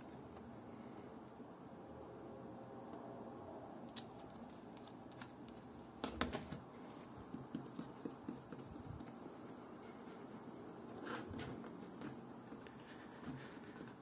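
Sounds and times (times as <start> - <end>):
fingertip rubbing polishing paste: 7.0 - 14.0.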